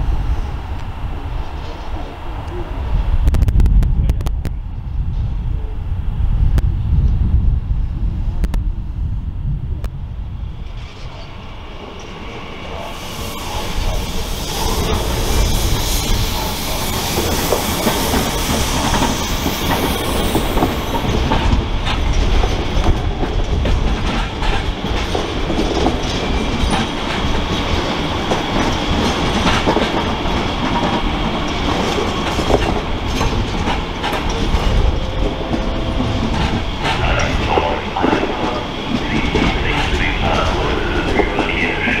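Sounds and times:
train wheels clattering over rails: 10.7s - 42.0s.

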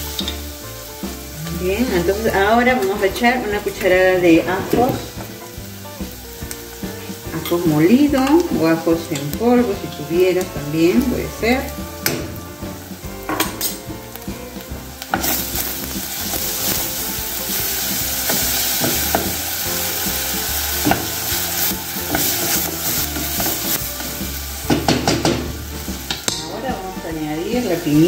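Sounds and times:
onion sizzling in hot oil: 0.0s - 28.0s
wooden spoon scraping a pot: 15.0s - 25.3s.

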